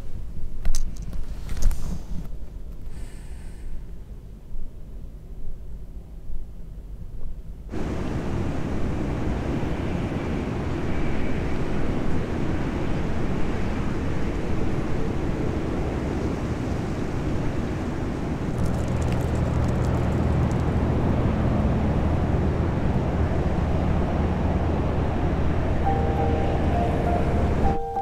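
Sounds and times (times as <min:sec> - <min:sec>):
car road and engine noise: 0:07.7 - 0:28.0
low even hum: 0:23.8 - 0:28.0.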